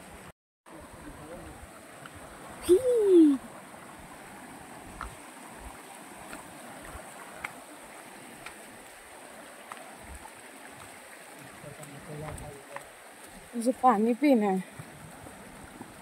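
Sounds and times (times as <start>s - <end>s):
stream rushing over rocks: 0.0s - 16.0s
person calling out: 2.6s - 3.4s.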